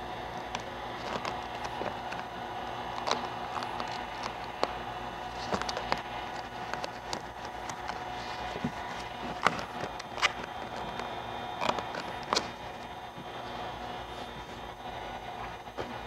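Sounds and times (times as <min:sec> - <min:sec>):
steady hum: 0:00.0 - 0:16.0
vinyl film ticks and crackles: 0:00.3 - 0:13.0.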